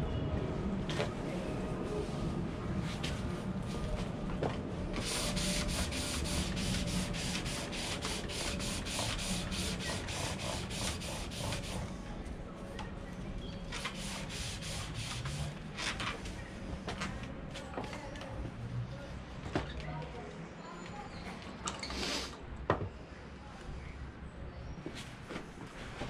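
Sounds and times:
lathe tool rasping on wood: 0:05.1 - 0:11.8.

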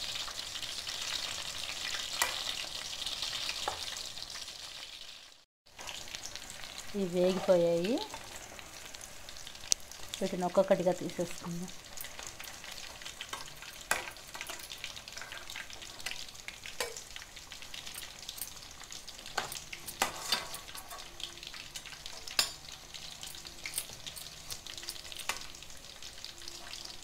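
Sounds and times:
oil sizzling: 0:00.0 - 0:27.0
spoon clinking against pan: 0:21.8 - 0:25.5.

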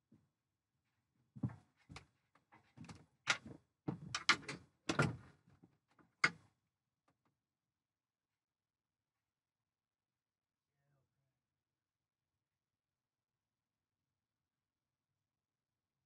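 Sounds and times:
knocks and clatters on a deck: 0:01.3 - 0:06.5.

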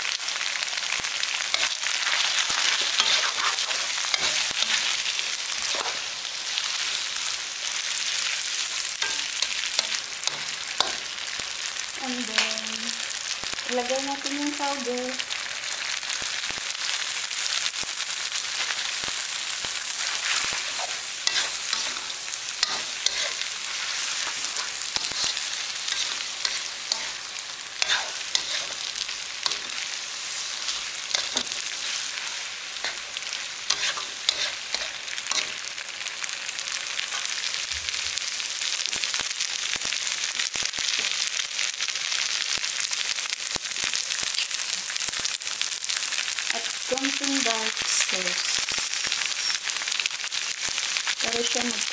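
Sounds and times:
food sizzling in a wok: 0:00.0 - 0:51.9
spatula scraping a pan: 0:01.5 - 0:06.1, 0:19.8 - 0:35.6.

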